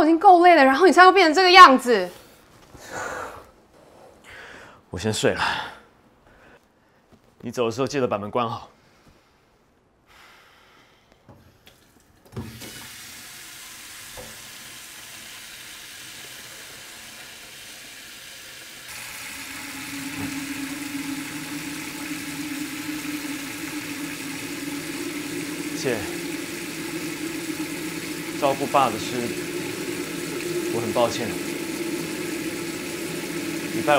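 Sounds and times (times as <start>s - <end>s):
water tap running: 11.7s - 33.9s.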